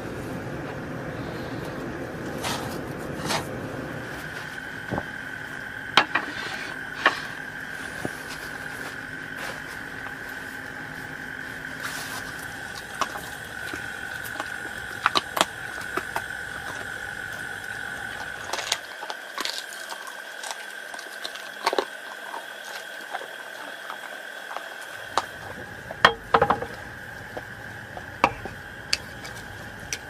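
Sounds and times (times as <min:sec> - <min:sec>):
high-pitched hum: 0:00.0 - 0:30.0
dog eating from metal bowl: 0:11.8 - 0:30.0.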